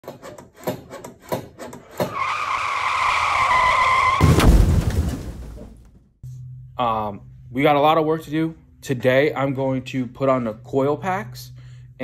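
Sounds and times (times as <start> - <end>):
heavy low thump: 4.2 - 6.1.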